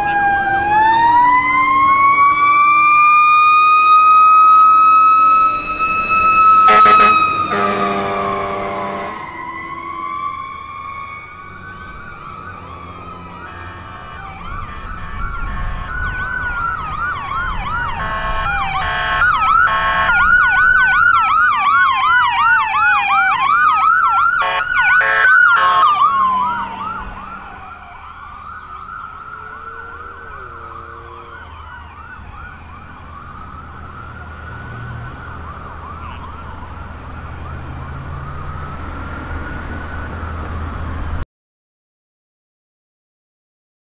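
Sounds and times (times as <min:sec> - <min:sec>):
ambulance siren yelping: 0:00.0 - 0:41.2
wailing siren: 0:00.0 - 0:41.2
short horn blasts: 0:06.6 - 0:09.3, 0:18.0 - 0:20.2, 0:24.4 - 0:26.1.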